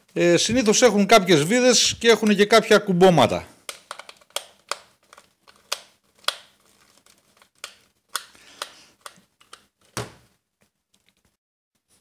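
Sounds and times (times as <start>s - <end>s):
screwdriver clicking on plastic: 3.7s - 6.5s.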